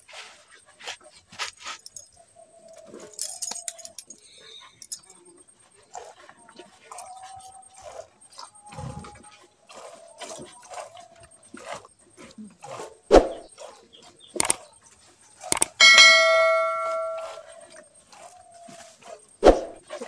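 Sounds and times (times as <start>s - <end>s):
click: 14.4s - 14.6s, 15.5s - 15.8s
notification bell ding: 15.8s - 17.5s.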